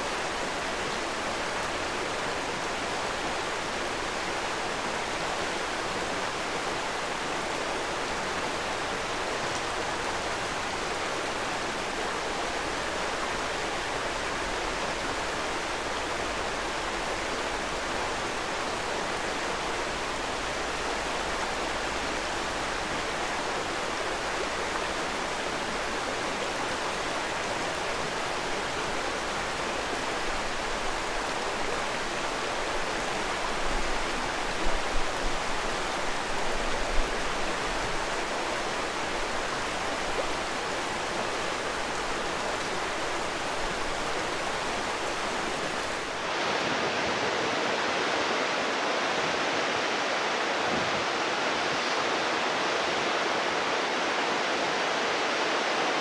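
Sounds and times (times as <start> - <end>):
stream running over rocks: 0.0 - 56.0.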